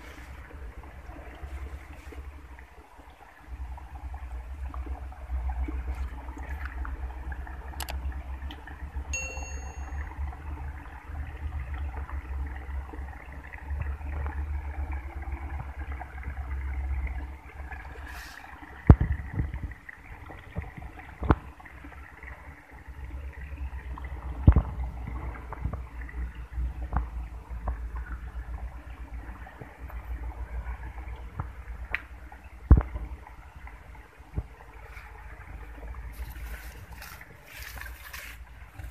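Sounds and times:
water running hiss: 17.9 - 18.7
wind buffeting microphone: 18.8 - 21.4.

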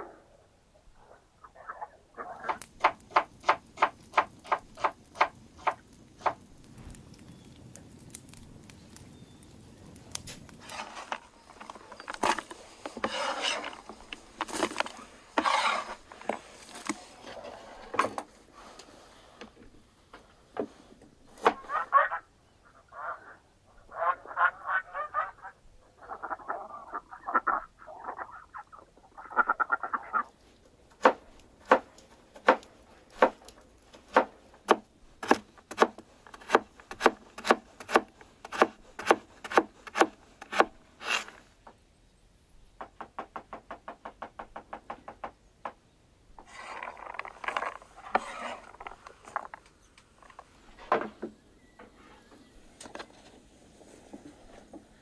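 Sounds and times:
rustling and scraping: 10.1 - 21.8, 37.7 - 41.7, 46.4 - 55.0
cleaver chopping on wooden board: 34.1 - 40.7.

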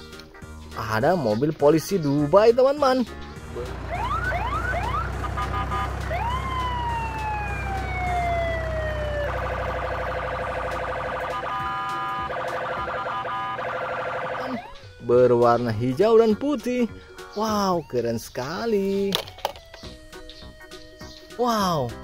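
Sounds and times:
electronic police siren: 3.5 - 15.0.

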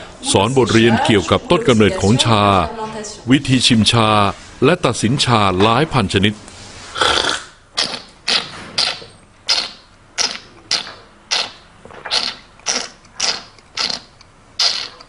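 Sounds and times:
person slurping tea: 6.9 - 15.0.

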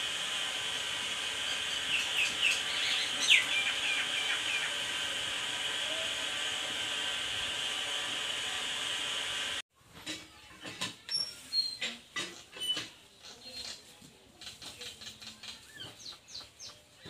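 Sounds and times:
milk hissing in a wok: 0.0 - 9.6
bird chirps: 1.5 - 4.8.

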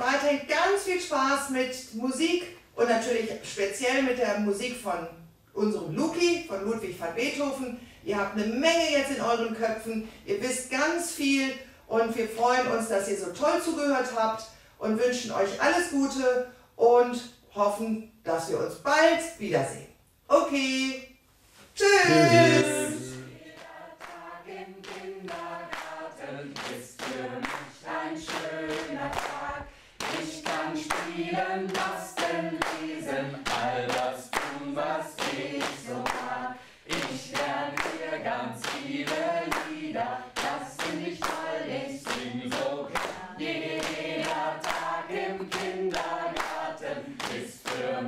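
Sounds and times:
group singing children's song: 22.0 - 48.0
hand clapping: 24.8 - 26.0, 26.6 - 27.7, 28.3 - 48.0.

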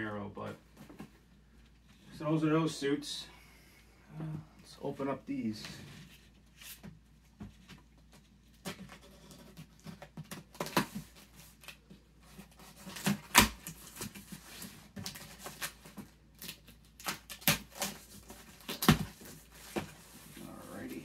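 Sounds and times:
knife slitting packing tape: 12.7 - 14.2, 16.4 - 19.1.

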